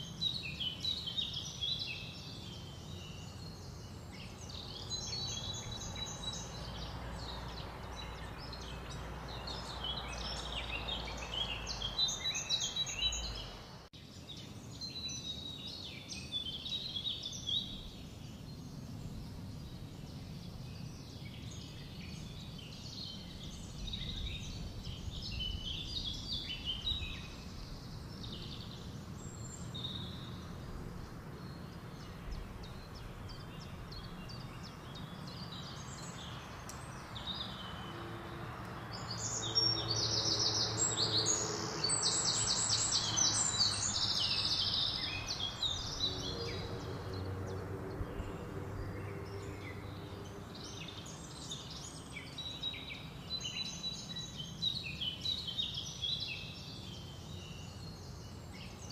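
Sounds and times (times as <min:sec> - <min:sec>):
songbirds singing: 0:00.0 - 0:58.9.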